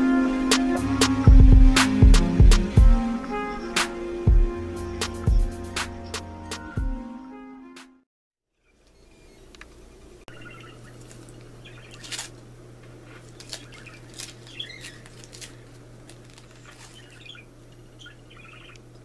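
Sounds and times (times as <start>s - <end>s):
steady low hum: 0.0s - 6.4s
birds chirping: 0.0s - 7.2s, 8.6s - 19.0s
paper wrapper crinkling: 11.0s - 12.4s, 13.0s - 17.8s.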